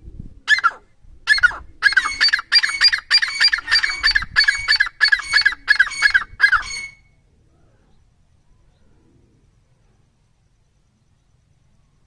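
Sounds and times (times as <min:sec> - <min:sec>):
bird calling shrill repeated notes: 0:00.5 - 0:07.2.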